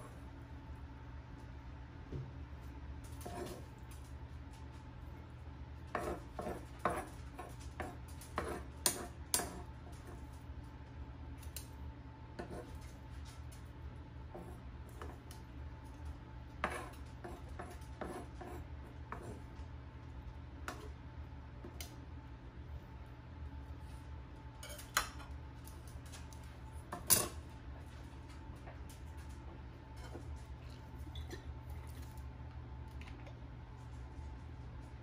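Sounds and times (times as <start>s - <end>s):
utensils clinking on ceramic bowl: 24.6s - 25.3s.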